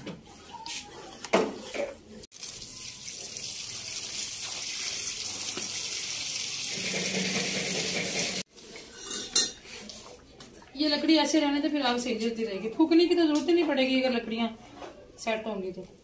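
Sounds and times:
water tap running: 2.4s - 8.5s.

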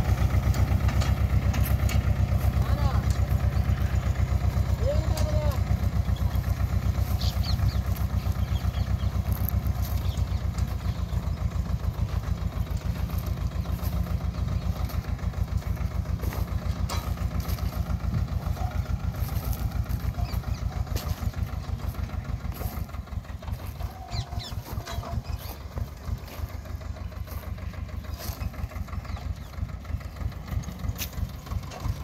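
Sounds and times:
tractor diesel engine chugging: 0.0s - 32.0s.

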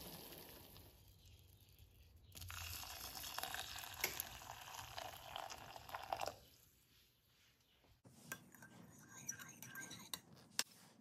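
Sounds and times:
water pouring with hiss and crackles: 0.0s - 1.7s, 2.3s - 6.5s.

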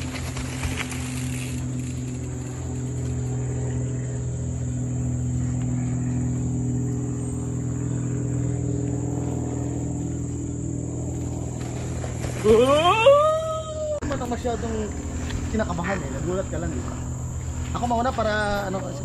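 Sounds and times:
low hum: 0.0s - 19.0s
high-pitched insect chorus: 9.2s - 19.0s.

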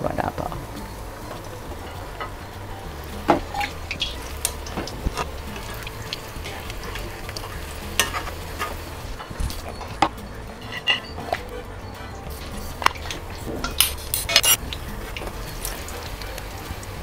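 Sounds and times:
oil sizzling while deep-frying: 0.0s - 17.0s
metal spoon clinking against pan: 5.5s - 11.5s.

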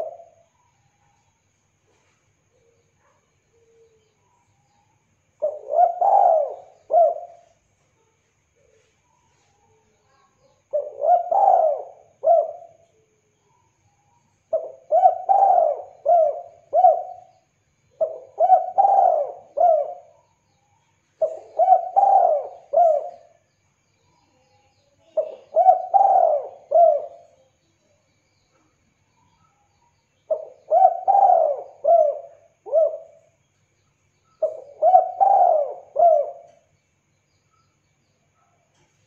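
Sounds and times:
dove cooing: 0.0s - 0.4s, 5.4s - 7.6s, 10.6s - 12.8s, 14.5s - 17.4s, 18.0s - 20.2s, 21.2s - 23.4s, 25.0s - 27.4s, 30.3s - 33.4s, 34.4s - 36.7s.

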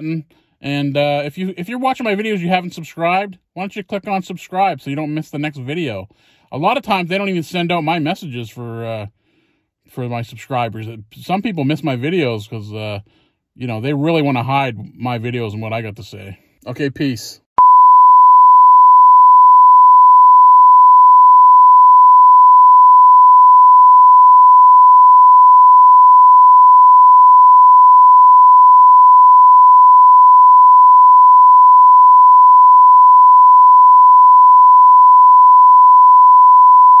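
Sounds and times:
censor bleep tone: 17.6s - 37.0s.

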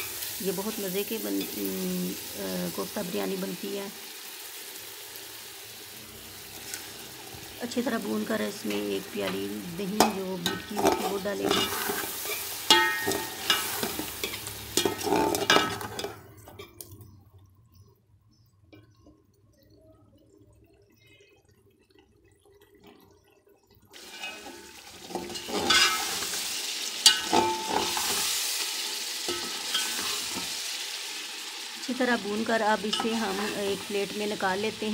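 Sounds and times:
frying sizzle: 0.0s - 34.9s
metal spatula scraping pot: 8.7s - 16.8s, 24.0s - 28.6s, 29.3s - 30.6s.

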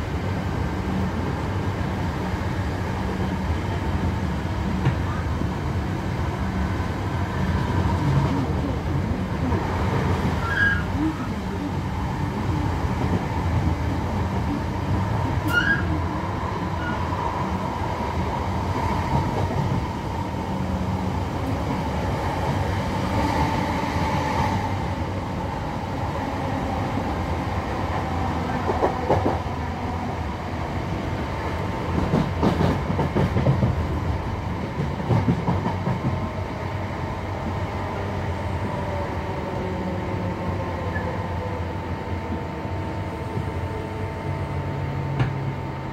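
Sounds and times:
train interior rumble: 0.0s - 45.9s
train clattering: 31.9s - 33.9s, 34.8s - 36.2s.

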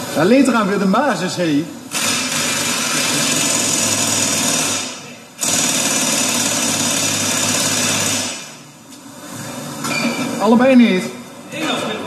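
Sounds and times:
electric motor machine running: 1.9s - 8.5s.

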